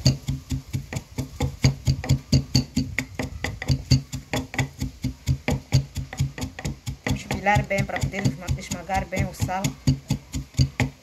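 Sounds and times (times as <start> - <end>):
pestle pounding in wooden mortar: 0.0 - 11.0.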